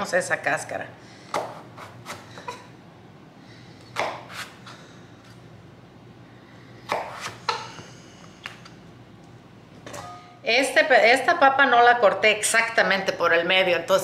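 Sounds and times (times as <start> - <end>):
knife chopping on wooden board: 1.3 - 2.2, 3.9 - 4.5, 6.9 - 7.7.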